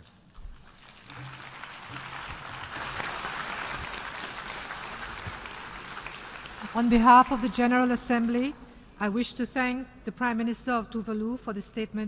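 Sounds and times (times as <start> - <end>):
audience applauding: 0.6 - 7.4.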